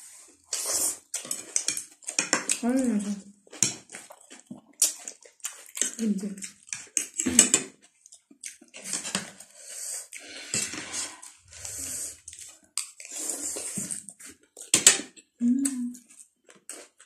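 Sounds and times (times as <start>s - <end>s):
people slurping noodles: 0.0s - 1.8s, 8.7s - 14.0s
forks and chopsticks clicking on plates: 1.2s - 2.7s, 5.8s - 7.7s.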